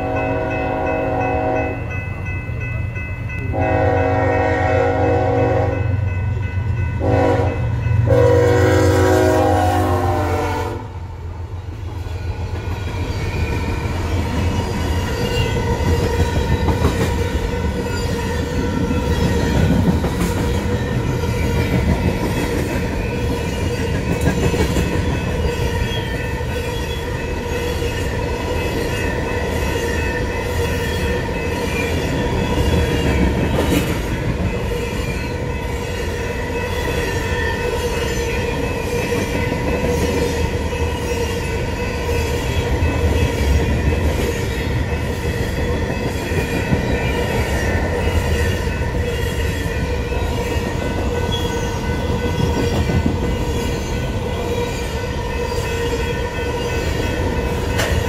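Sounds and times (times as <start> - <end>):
locomotive air horn: 0.0 - 1.8, 3.5 - 5.9, 7.0 - 10.9
crossing bell ringing: 0.0 - 9.5, 12.1 - 58.0
train wheels clicking over rail joints: 11.9 - 26.5, 57.2 - 58.0.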